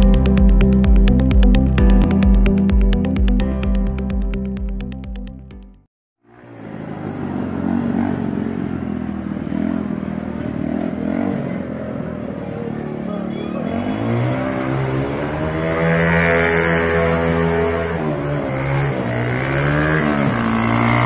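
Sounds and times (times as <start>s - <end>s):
go-kart engine accelerating: 6.2s - 21.0s.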